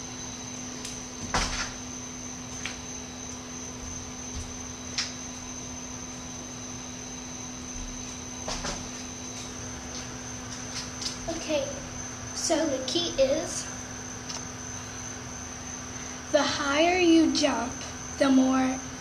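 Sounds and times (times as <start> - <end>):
electrical hum with high whine: 0.0 - 19.0.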